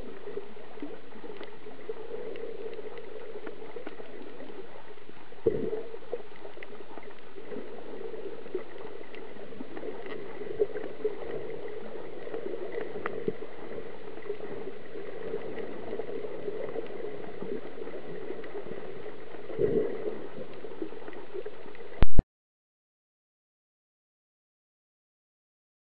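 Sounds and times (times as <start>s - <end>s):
muffled underwater noise: 0.0s - 22.2s
faint clicks: 0.7s - 7.7s.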